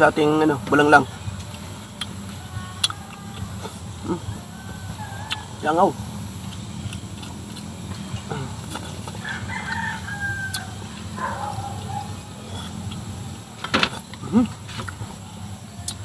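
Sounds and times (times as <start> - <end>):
steady low hum: 0.0 - 16.0
fowl calling: 2.5 - 6.0, 9.2 - 12.5.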